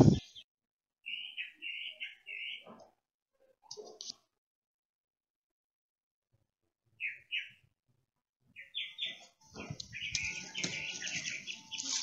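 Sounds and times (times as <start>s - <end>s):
bird chirping: 0.0s - 2.8s, 7.0s - 7.7s, 8.5s - 12.0s
rustling of leaves being handled: 10.2s - 12.0s.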